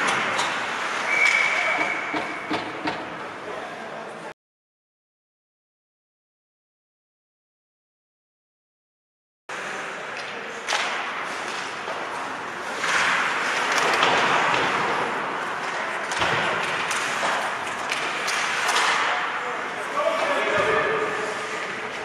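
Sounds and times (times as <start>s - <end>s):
skates scraping on ice: 10.9s - 22.0s.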